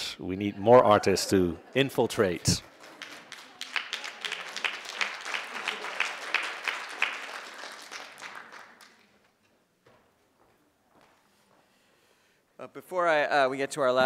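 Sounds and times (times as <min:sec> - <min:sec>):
audience applauding: 0:02.2 - 0:09.3
hands clapping sharply nearby: 0:02.5 - 0:09.4.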